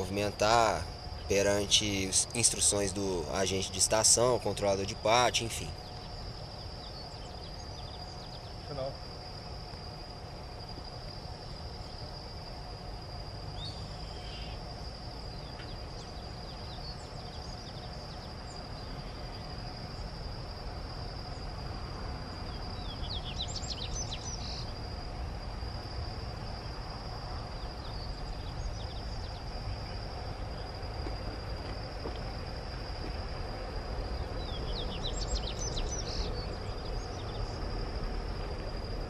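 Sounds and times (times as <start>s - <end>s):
bird chirping: 0.0s - 9.0s, 13.5s - 20.1s, 22.4s - 24.8s, 27.5s - 32.3s, 33.6s - 37.8s
faint low steady hum: 0.0s - 39.0s
insects droning: 0.0s - 39.0s
low rumbling background noise: 0.0s - 39.0s.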